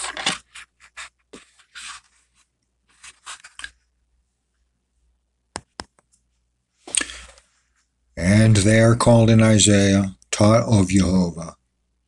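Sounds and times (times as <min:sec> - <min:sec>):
soft rustles: 0:00.0 - 0:03.9.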